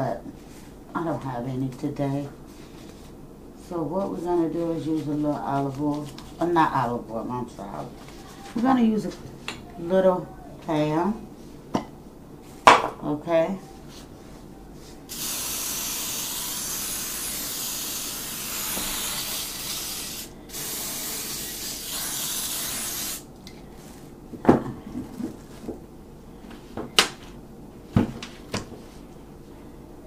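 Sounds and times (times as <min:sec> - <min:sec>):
cooking spray hissing: 0:15.1 - 0:23.3.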